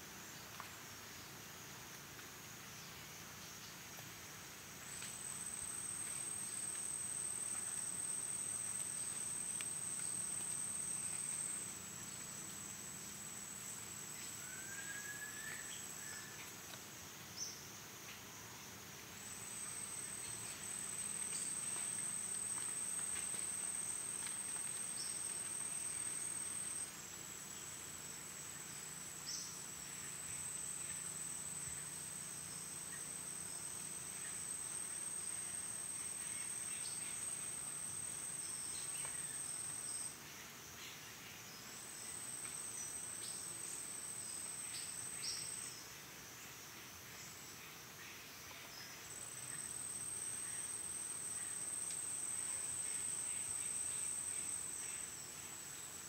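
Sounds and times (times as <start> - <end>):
insects shrilling drone: 13.9 - 16.5, 47.2 - 56.0.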